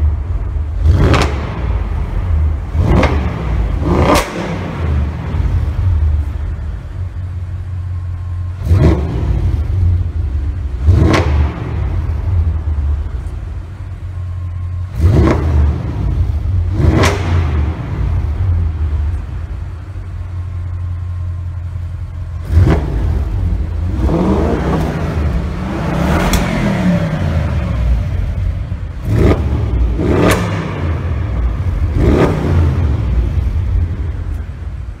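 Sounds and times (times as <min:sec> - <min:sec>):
car engine idling with low burble: 0:00.0 - 0:35.0
engine revving: 0:00.8 - 0:06.1, 0:08.5 - 0:12.7, 0:14.8 - 0:19.3, 0:22.1 - 0:34.3.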